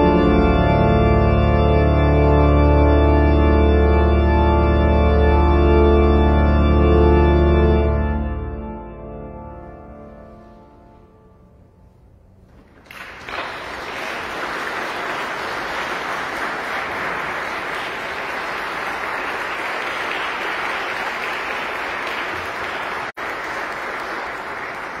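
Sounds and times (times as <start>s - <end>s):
audience applauding: 12.6s - 25.0s.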